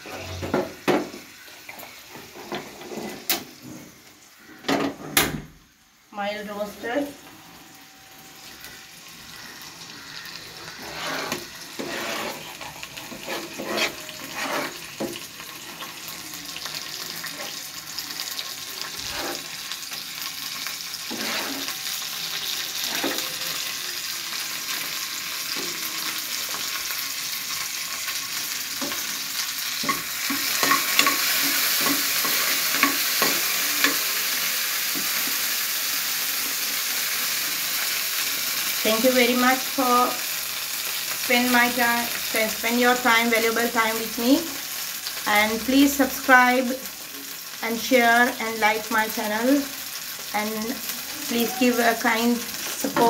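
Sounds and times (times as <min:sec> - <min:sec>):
nuts sizzling in pan: 0:00.0 - 0:05.0, 0:05.6 - 0:53.0
stirring clicks and scrapes: 0:10.8 - 0:15.0.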